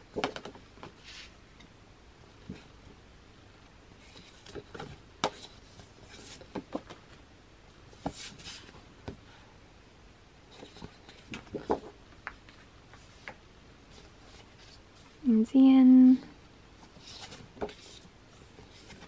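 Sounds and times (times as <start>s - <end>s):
photo sheets tapping and rustling: 4.1s - 7.2s, 10.5s - 13.4s.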